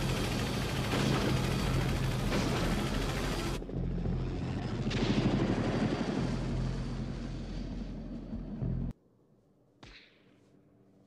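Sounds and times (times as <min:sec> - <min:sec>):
helicopter rotor chop: 0:00.0 - 0:08.6.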